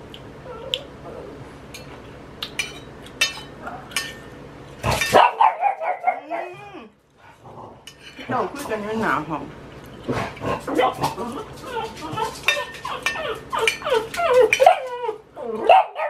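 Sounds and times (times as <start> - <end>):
dog whining: 0.4 - 1.4, 10.6 - 16.0
cutlery clinking on plate: 2.5 - 4.2, 12.2 - 14.8
dog barking: 5.1 - 6.5, 15.6 - 16.0.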